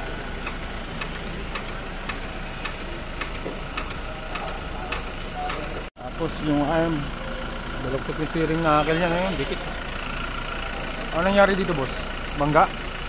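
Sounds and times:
steady ticking: 0.0 - 6.8
engine idling hum: 0.0 - 13.0.

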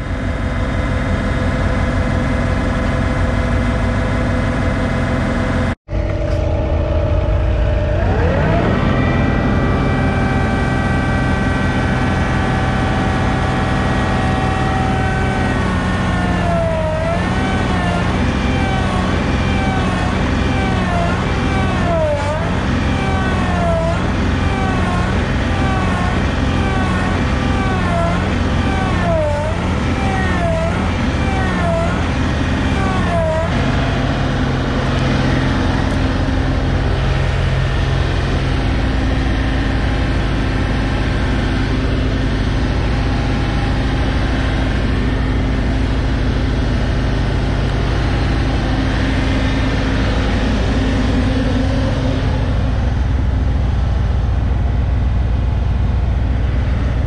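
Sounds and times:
diesel tractor engine under load: 0.0 - 57.0.

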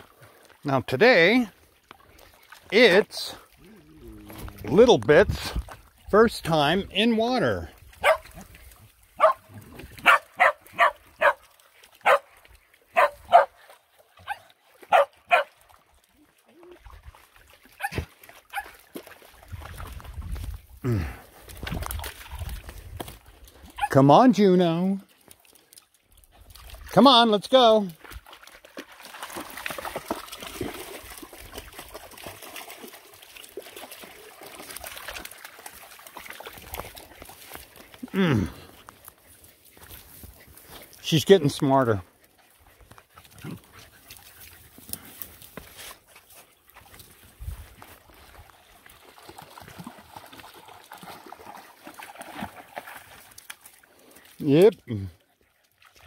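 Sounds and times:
dogs splashing through creek: 0.0 - 56.0
water trickling over stones: 0.0 - 56.0
dog barking: 8.0 - 8.4, 9.2 - 11.4, 12.0 - 12.3, 12.9 - 13.6, 14.2 - 15.5, 17.8 - 18.7.

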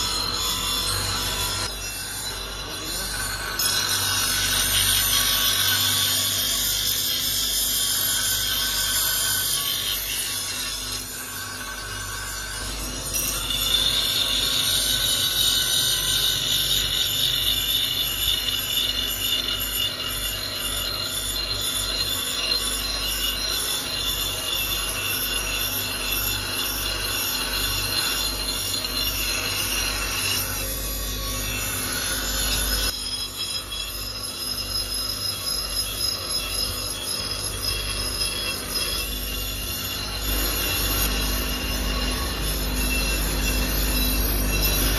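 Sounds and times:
metal grinding squeal: 0.0 - 44.9.

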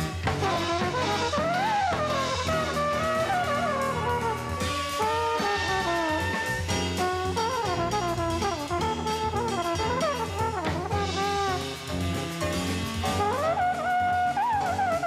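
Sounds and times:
bass and drums: 0.0 - 15.0
jazz with brass horns: 0.0 - 15.0.

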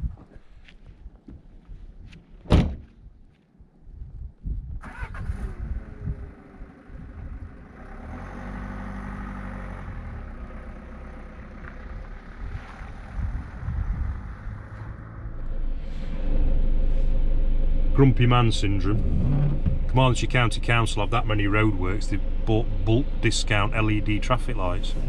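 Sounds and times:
van door slamming: 2.4 - 2.9
van engine starting and running: 4.7 - 25.0.

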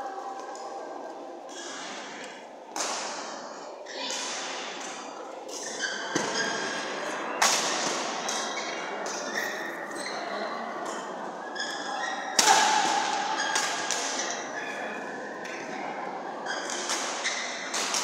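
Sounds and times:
racket hitting shuttlecock: 12.4 - 14.4.

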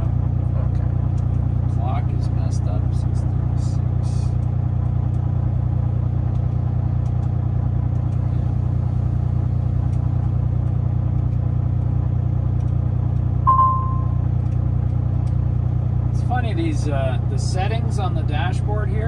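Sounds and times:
diesel truck engine idling: 0.0 - 19.0
short electronic beep: 13.5 - 14.2.

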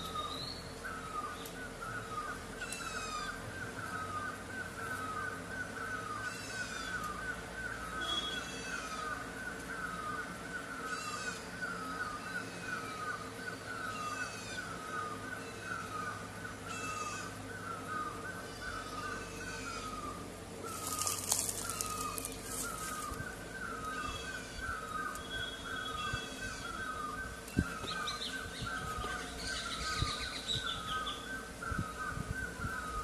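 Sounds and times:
bird two-note call: 8.0 - 8.5
bird falling trills: 20.6 - 23.4.

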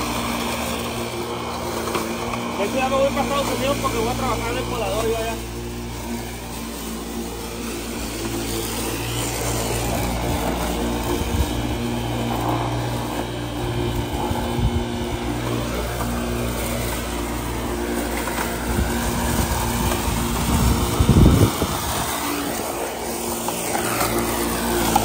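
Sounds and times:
electric lawn mower humming: 0.0 - 25.0.

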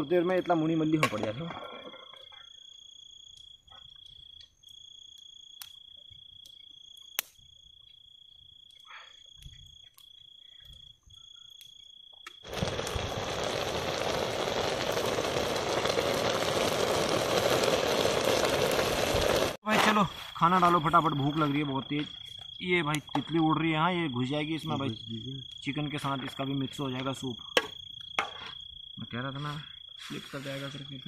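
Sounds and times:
cricket trilling: 0.0 - 18.8, 19.6 - 31.0.

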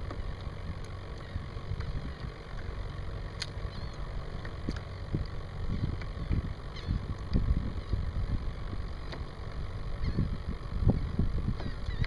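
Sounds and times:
wind buffeting microphone: 4.6 - 12.0.

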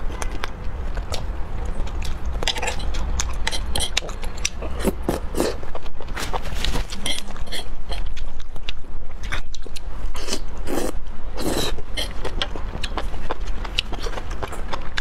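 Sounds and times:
wet chewing: 0.0 - 15.0
fork scraping a tray: 6.9 - 8.1
slurping: 10.2 - 12.2.

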